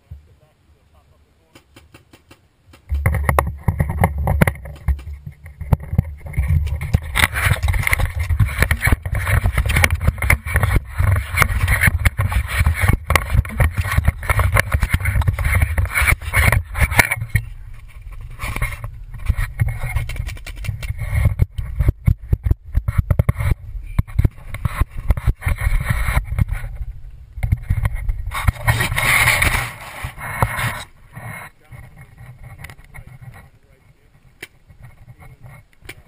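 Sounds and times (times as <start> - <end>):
paintball marker popping: 1.5 - 3.2
rumbling and knocking from handling: 1.6 - 33.2.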